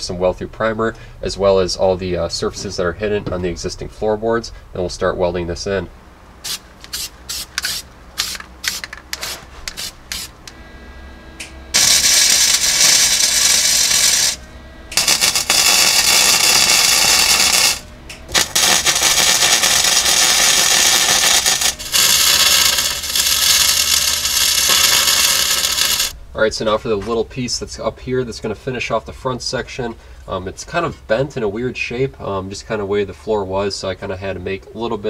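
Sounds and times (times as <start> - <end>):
welder crackling hiss: 6.4 - 10.6, 11.7 - 26.2.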